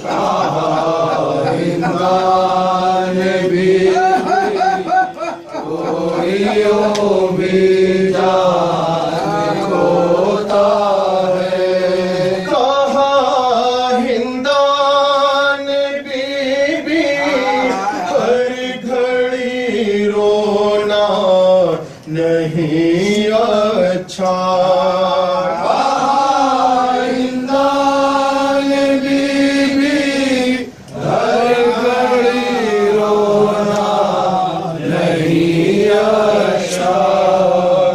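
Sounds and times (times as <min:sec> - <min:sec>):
men chanting a lament: 0:00.0 - 0:37.9.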